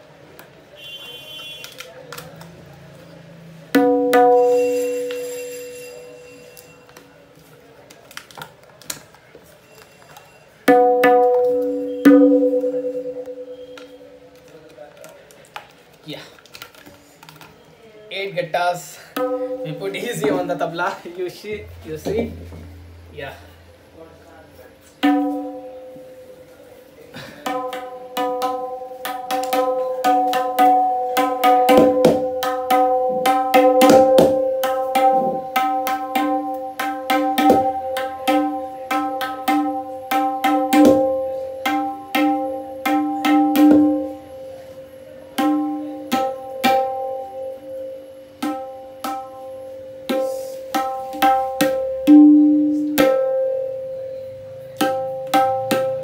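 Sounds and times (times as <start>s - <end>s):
tabla drum strokes: 3.7s - 7.0s, 9.6s - 14.5s, 19.1s - 20.9s, 21.5s - 24.0s, 24.8s - 56.0s.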